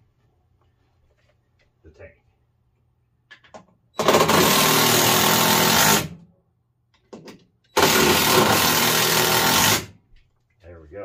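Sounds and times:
power drill boring: 0:04.0 - 0:06.1, 0:07.8 - 0:09.9.

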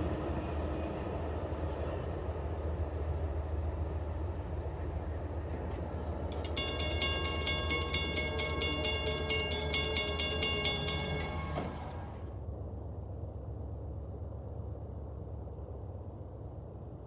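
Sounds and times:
railroad crossing bell ringing: 0:05.5 - 0:12.3.

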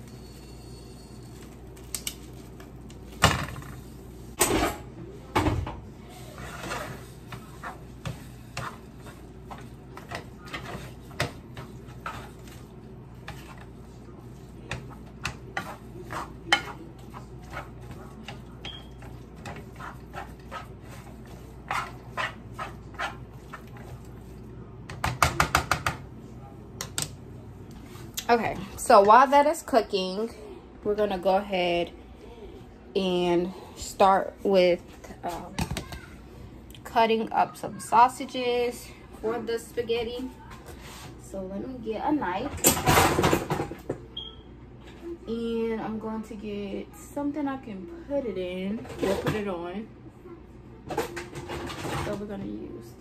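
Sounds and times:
spatula scraping and knocking pan: 0:06.2 - 0:24.3.

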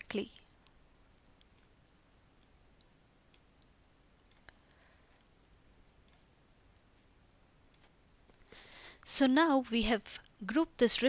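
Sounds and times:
computer mouse clicks: 0:00.4 - 0:08.0.

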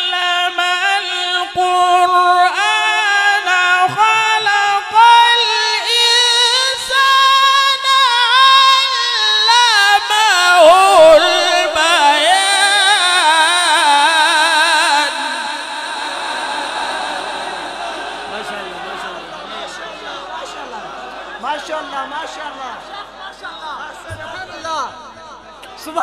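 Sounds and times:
man reciting in melodic chant: 0:00.0 - 0:20.8.

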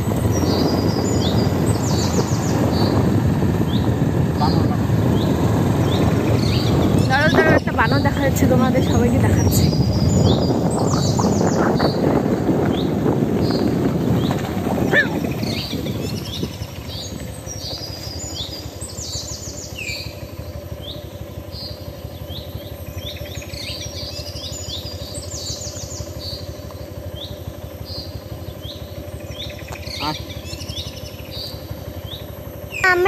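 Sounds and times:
low rumble: 0:00.0 - 0:20.2
forest birds chirping: 0:00.0 - 0:33.0
steady low hum: 0:00.0 - 0:33.0.

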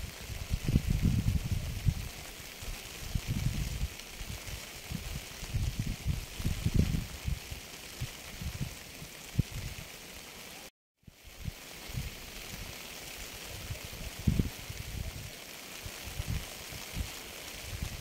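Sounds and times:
low thuds of raindrops: 0:00.0 - 0:10.1
rain hissing: 0:00.0 - 0:18.0.

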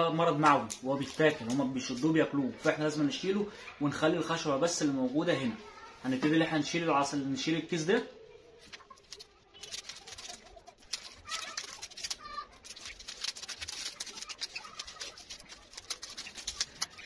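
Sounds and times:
plastic sleeve crackling: 0:00.2 - 0:02.2, 0:08.6 - 0:17.0.

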